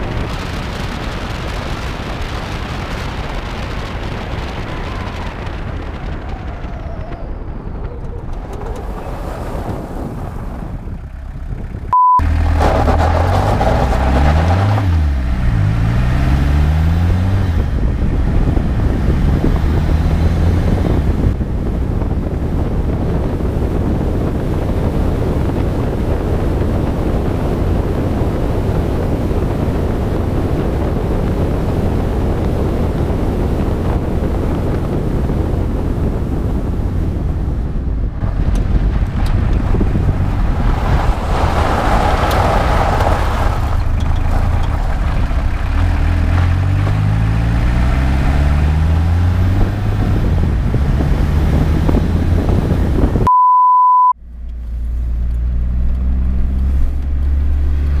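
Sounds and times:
wind buffeting microphone: 0.0s - 12.0s, 12.6s - 53.3s
road noise: 0.0s - 53.3s, 54.0s - 58.0s
car engine accelerating: 0.2s - 21.4s, 38.4s - 53.3s, 54.2s - 58.0s
electronic beep: 11.9s - 12.3s, 53.3s - 54.2s.

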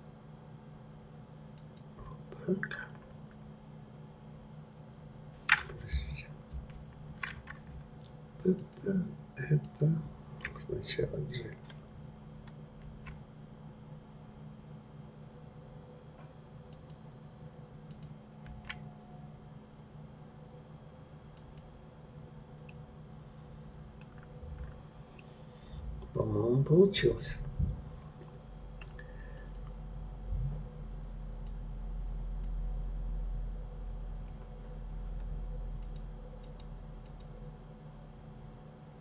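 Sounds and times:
low steady hum: 0.0s - 39.0s
computer mouse clicking: 1.5s - 1.9s, 16.7s - 17.0s, 17.9s - 18.9s, 21.3s - 21.7s, 28.3s - 29.8s, 31.4s - 31.6s, 35.2s - 37.3s.

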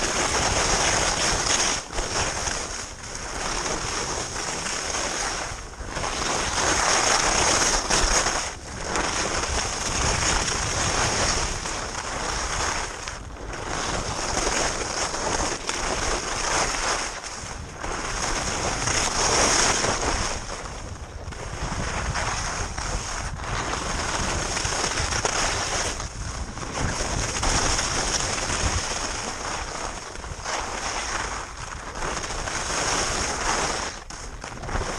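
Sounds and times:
skis scraping over snow: 0.0s - 34.9s
wind rushing over microphone: 0.0s - 34.9s.

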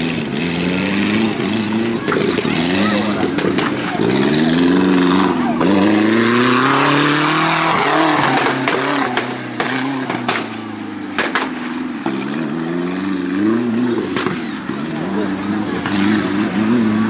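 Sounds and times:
buggy engine revving: 0.0s - 17.0s
sharp cracks: 6.4s - 12.3s.

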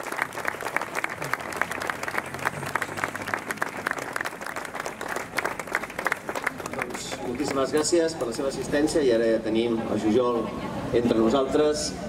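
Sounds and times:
small group applauding: 0.0s - 8.4s.

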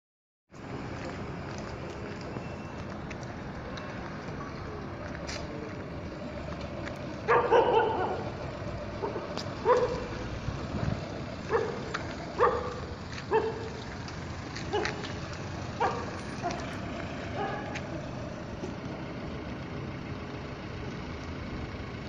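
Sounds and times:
dog barking: 7.3s - 8.3s, 9.0s - 10.2s, 11.5s - 13.7s, 14.7s - 15.0s, 15.8s - 16.6s, 17.4s - 17.8s.

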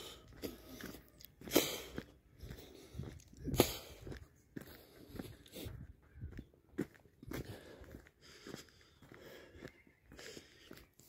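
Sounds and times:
footsteps crunching on gravel: 0.0s - 11.0s.

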